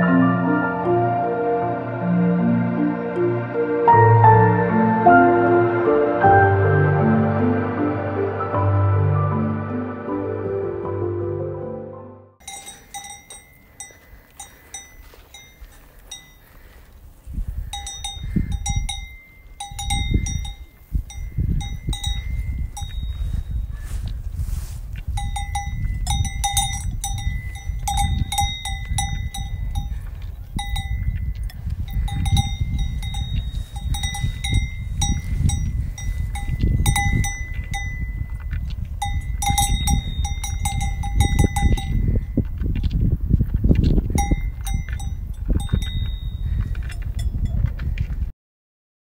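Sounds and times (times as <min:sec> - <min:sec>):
cowbells clanking: 0:12.4 - 0:16.8, 0:17.6 - 0:23.6, 0:24.5 - 0:42.9, 0:43.8 - 0:47.8.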